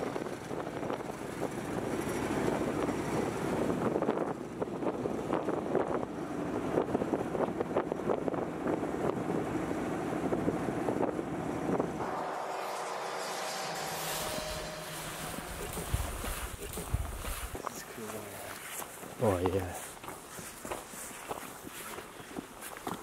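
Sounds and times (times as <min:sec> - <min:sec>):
wind buffeting microphone: 0:00.0 - 0:12.2, 0:13.6 - 0:18.2
boat engine rumble: 0:00.0 - 0:23.0.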